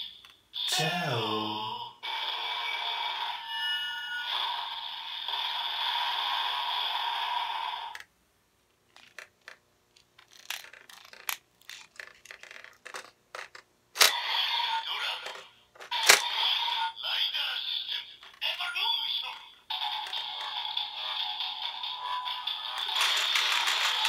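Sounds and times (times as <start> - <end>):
plastic clicks and rattles: 8.9 - 14.2
toy belt electronic sound: 14.0 - 17.0, 17.8 - 24.0.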